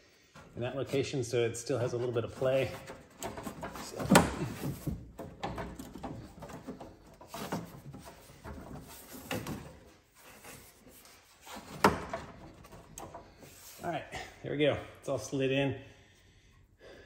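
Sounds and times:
metal rubbing and scraping: 0.2 - 13.9.

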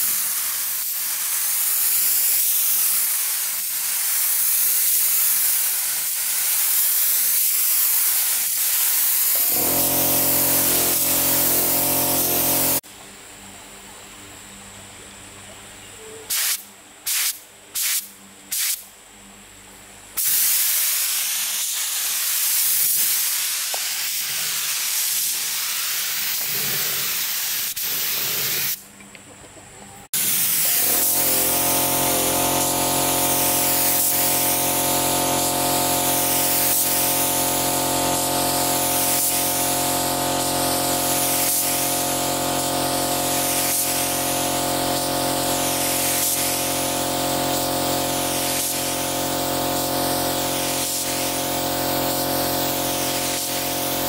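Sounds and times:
spraying hiss: 0.0 - 12.8, 16.3 - 18.9, 20.2 - 28.9, 30.2 - 54.0
machine motor hum: 9.4 - 12.8.

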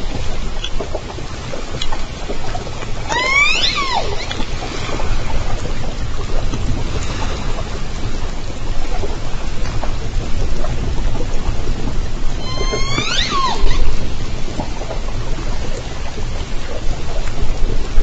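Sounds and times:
faint underwater clicks: 0.0 - 18.0
underwater hiss and low rumble: 0.0 - 18.0
killer whale call underwater: 2.9 - 5.8, 12.3 - 15.1.

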